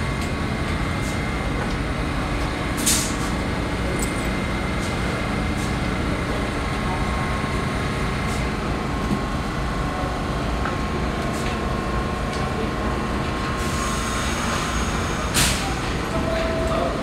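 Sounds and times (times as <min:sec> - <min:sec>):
subway car rumble and hum: 0:00.0 - 0:17.0.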